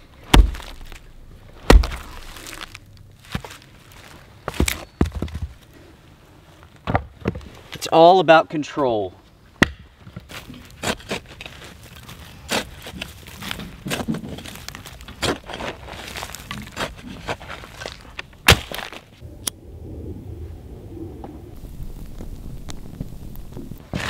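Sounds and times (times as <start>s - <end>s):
wood and charcoal knocking: 0.2s - 3.4s.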